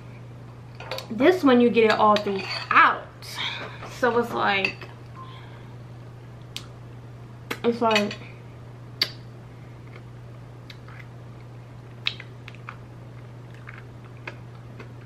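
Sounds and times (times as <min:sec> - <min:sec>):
steady low hum: 0:00.0 - 0:15.0
eating mouth clicks: 0:12.0 - 0:12.8.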